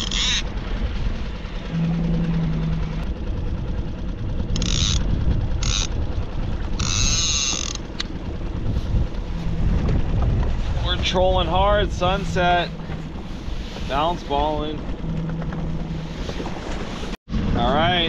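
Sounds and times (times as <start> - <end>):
mechanical creaking: 0.0 - 0.6, 1.6 - 3.6, 4.4 - 17.0
boat motor rumbling: 0.0 - 18.0.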